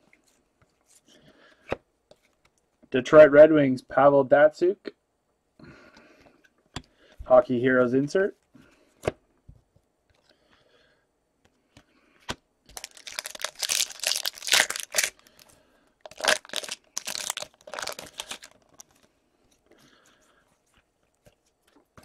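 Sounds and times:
foil wrapper tearing and crinkling: 12.7 - 15.4, 16.0 - 19.0.

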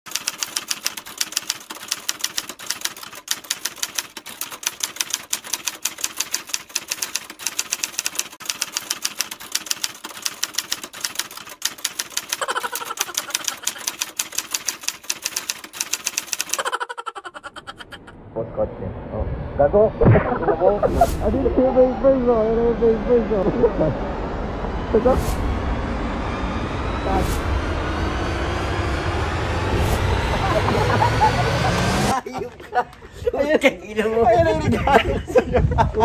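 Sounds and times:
keyboard typing: 0.1 - 18.0.

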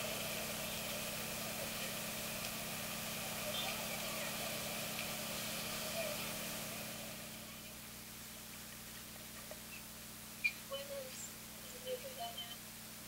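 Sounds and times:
indistinct voices: 0.0 - 7.8
distant traffic hum: 0.0 - 7.9.

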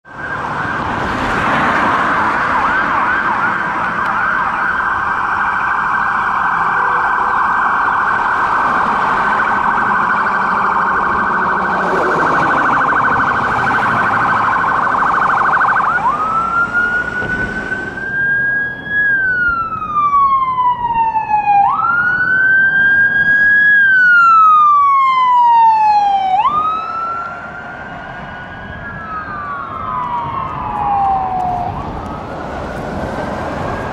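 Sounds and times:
ambulance siren: 0.0 - 33.9.

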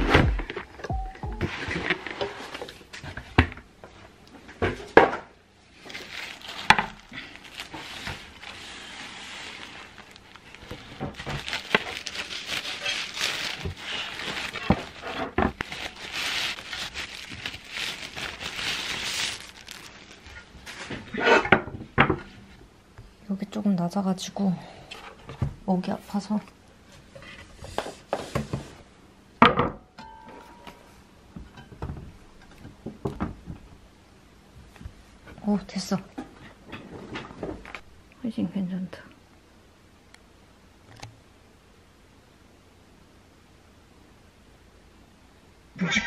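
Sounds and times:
plastic bag crinkling: 5.7 - 20.9.

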